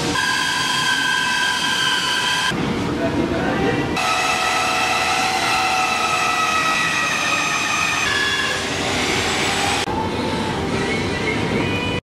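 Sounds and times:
band saw cutting timber: 0:04.0 - 0:09.9.

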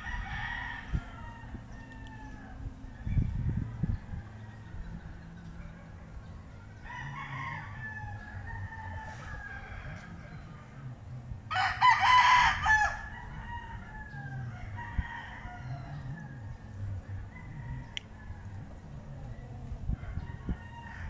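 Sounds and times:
faint rooster crows: 0:00.0 - 0:10.8, 0:11.5 - 0:21.0
rooster crowing loudly: 0:06.8 - 0:10.1, 0:11.5 - 0:16.1.

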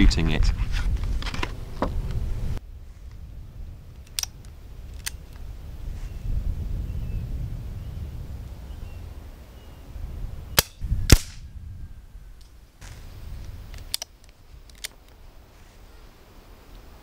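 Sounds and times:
air rifle cracks: 0:10.6 - 0:11.4, 0:13.7 - 0:15.2.

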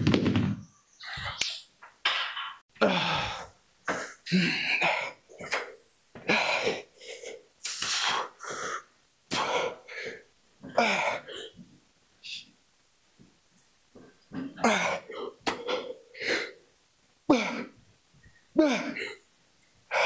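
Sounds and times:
man grunting: 0:02.8 - 0:03.5, 0:18.6 - 0:19.2
man breathing hard: 0:02.8 - 0:11.3, 0:14.6 - 0:16.6.

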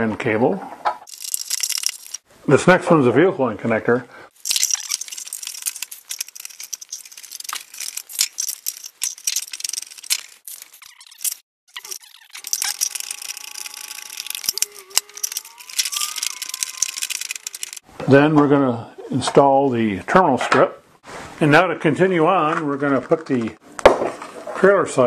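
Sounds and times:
small plastic clicks and rattles: 0:11.2 - 0:17.8.

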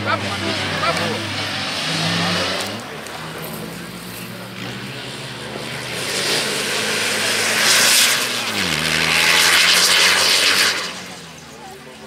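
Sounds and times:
rally car engine passing: 0:00.0 - 0:12.0
loud rushing noise: 0:05.1 - 0:11.4.

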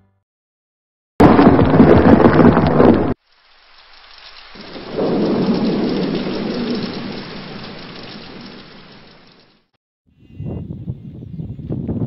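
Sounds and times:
rain: 0:01.2 - 0:09.7
thunder rumble: 0:01.2 - 0:09.7.

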